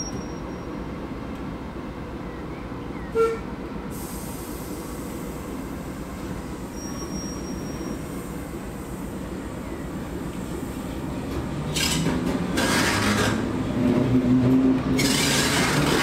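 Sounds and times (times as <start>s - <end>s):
locomotive engine rumbling: 0.0s - 16.0s
high wheel squeal: 6.7s - 8.2s.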